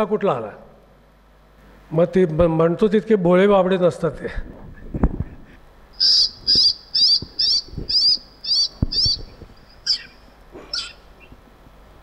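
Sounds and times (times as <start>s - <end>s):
bird call with buzzy notes: 6.0s - 11.3s.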